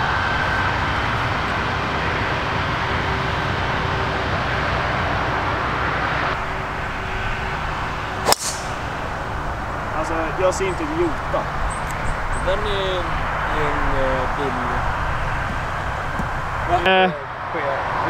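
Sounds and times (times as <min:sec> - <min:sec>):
rushing outdoor background: 0:00.0 - 0:18.0
golf club striking ball: 0:08.2 - 0:09.0.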